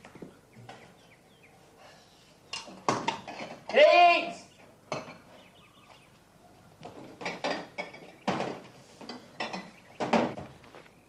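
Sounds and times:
pots and crockery clattering: 2.6 - 3.8, 4.9 - 5.3, 6.9 - 10.4.

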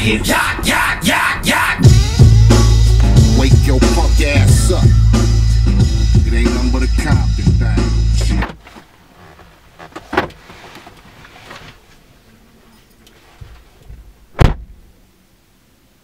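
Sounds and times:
car door shutting thud: 8.2 - 8.8, 9.9 - 10.4, 13.9 - 14.8
knock and rustling: 8.2 - 11.8.

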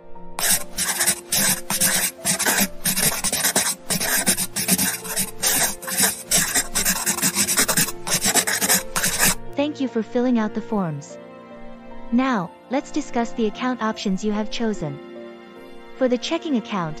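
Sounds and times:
pen scribbling on paper: 0.4 - 9.4.

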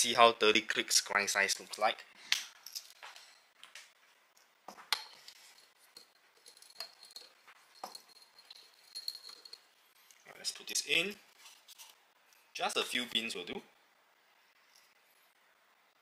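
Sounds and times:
glass jar clinking: 4.9 - 9.7.

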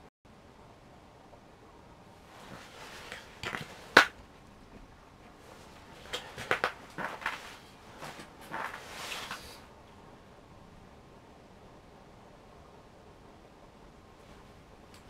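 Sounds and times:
heavy suit rustling: 2.2 - 9.7
boots shifting on ice: 5.5 - 9.6.

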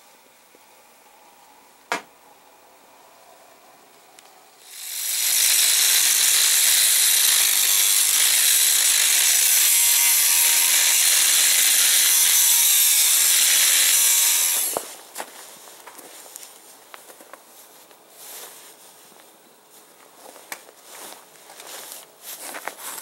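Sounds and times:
angle grinder cutting steel pipe: 4.6 - 14.9.

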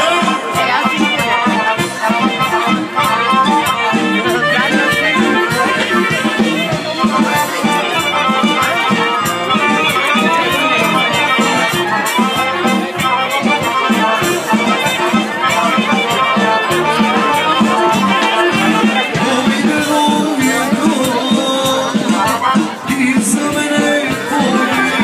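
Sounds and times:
folk dance music: 0.0 - 25.0.

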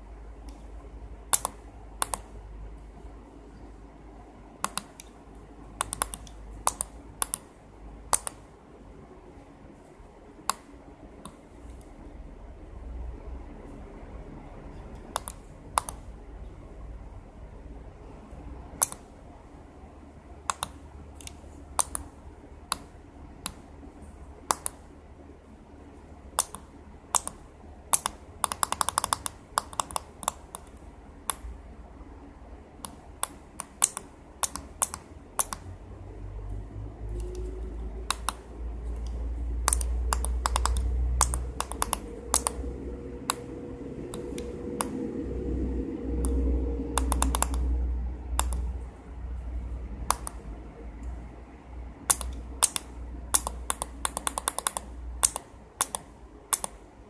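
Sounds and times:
pushbuttons and relays clicking: 5.8 - 7.5, 26.4 - 31.5, 38.1 - 43.5, 47.0 - 47.6, 52.1 - 56.8
low rumble: 35.7 - 52.1.

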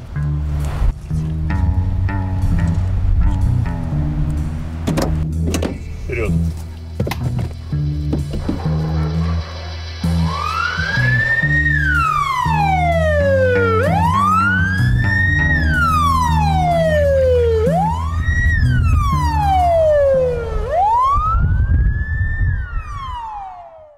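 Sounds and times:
low background music: 0.0 - 23.4
police siren wailing: 8.6 - 23.9.

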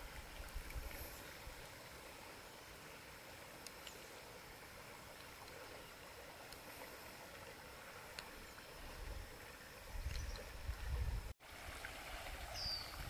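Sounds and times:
quiet outdoor hiss: 0.0 - 13.0
soft ticks: 3.6 - 4.0, 8.1 - 8.3.

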